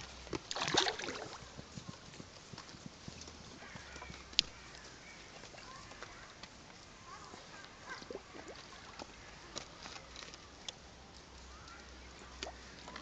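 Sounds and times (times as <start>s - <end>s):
fish splashing at water surface: 0.5s - 1.4s.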